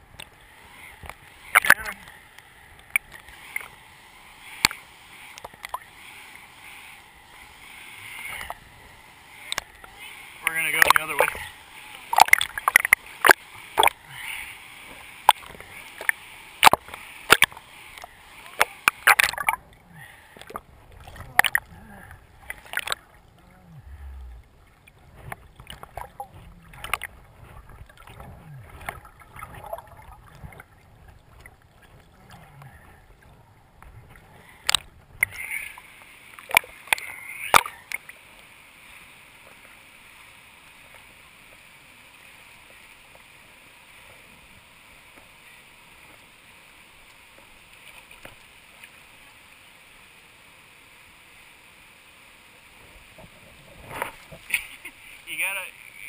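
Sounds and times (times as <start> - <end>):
river water splashing: 0.0 - 56.0
muffled underwater sound: 0.5 - 3.8, 6.8 - 35.8.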